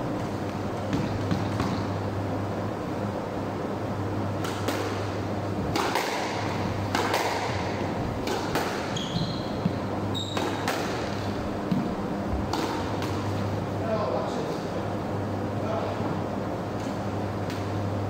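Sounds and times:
squash ball strikes: 0.8s - 2.0s, 4.3s - 13.5s
shoe squeaks on wooden floor: 8.9s - 10.6s.

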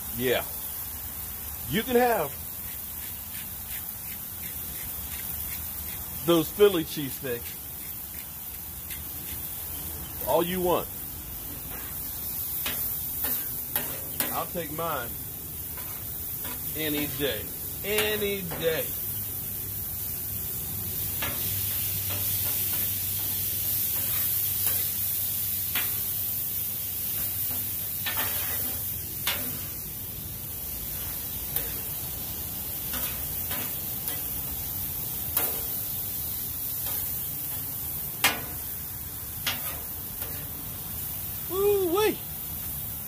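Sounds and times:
meat and vegetables sizzling: 0.0s - 43.0s
metal spatula scraping griddle: 2.0s - 6.7s, 11.6s - 14.8s, 15.6s - 19.0s, 21.2s - 25.0s, 27.1s - 29.8s, 30.9s - 32.0s, 32.8s - 34.4s, 39.4s - 40.5s.

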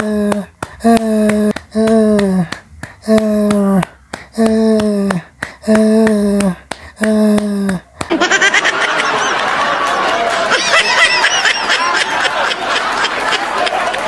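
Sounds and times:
people laughing and snickering: 8.1s - 14.0s.

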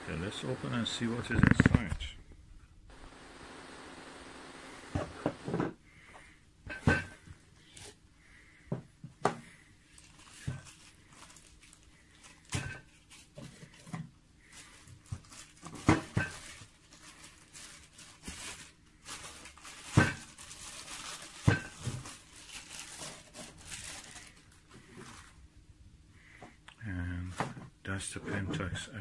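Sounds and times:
plastic packaging rustling: 9.4s - 25.5s.

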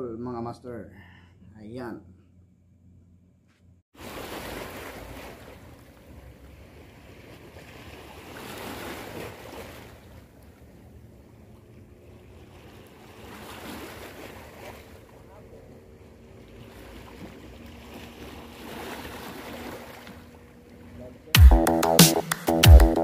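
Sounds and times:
waves washing over rocks: 4.0s - 6.0s.

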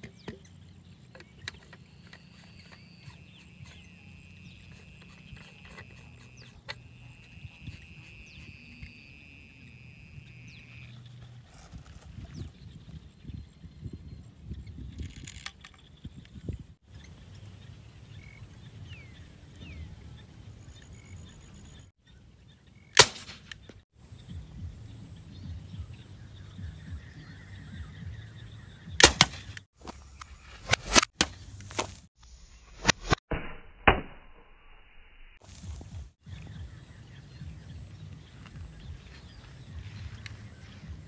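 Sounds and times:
air rifle sharp snaps: 23.0s - 23.8s, 29.0s - 29.6s.

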